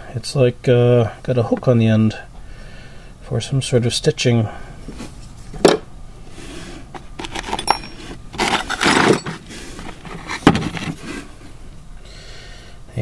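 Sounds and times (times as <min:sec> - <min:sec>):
metal tools clinking and scraping: 0:07.0 - 0:11.0
ringing metal clink: 0:07.4 - 0:08.2.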